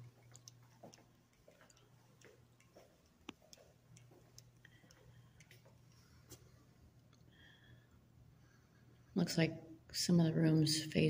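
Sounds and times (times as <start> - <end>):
light ticks: 0.0 - 6.4
faint low hum: 0.0 - 11.0.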